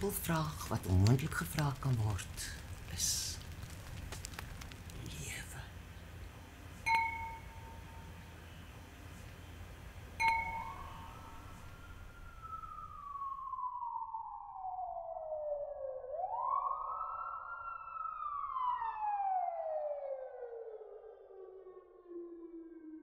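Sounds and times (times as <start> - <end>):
low room noise: 0.0 - 15.7
siren-like swooping tone: 10.3 - 23.0.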